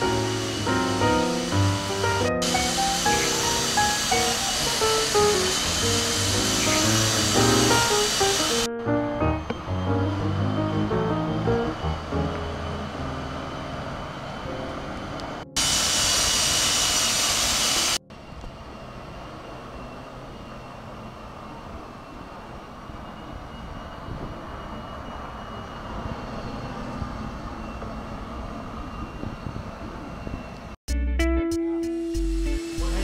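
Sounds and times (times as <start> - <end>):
loud hissing rush: 0.0 - 8.7, 15.6 - 18.0, 32.2 - 33.0.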